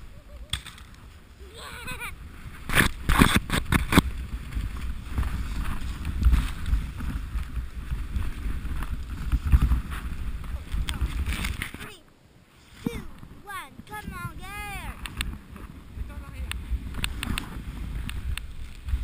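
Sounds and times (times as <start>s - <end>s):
sled runners rushing on snow: 1.0s - 11.7s, 13.0s - 19.0s
high voice: 12.9s - 15.0s.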